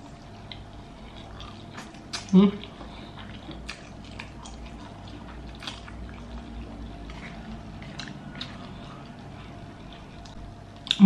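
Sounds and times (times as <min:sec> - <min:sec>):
person chewing food: 0:00.0 - 0:11.0
mouth smacks: 0:01.8 - 0:02.8.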